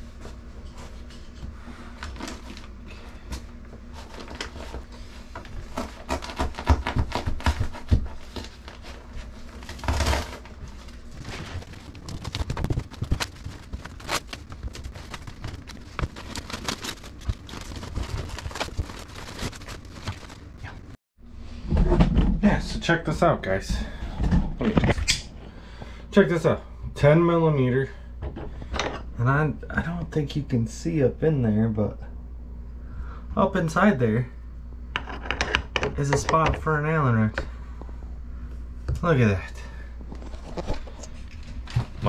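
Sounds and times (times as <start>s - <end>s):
insulation rustling and crackling: 0.0s - 21.0s, 40.0s - 42.0s
tearing rustle: 5.8s - 20.9s.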